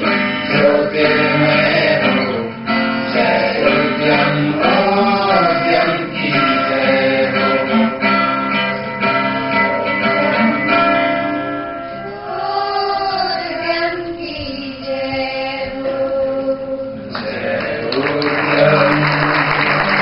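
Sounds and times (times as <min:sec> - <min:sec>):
children's choir singing: 0:00.0 - 0:08.4, 0:09.2 - 0:20.0
guitar accompaniment: 0:00.0 - 0:20.0.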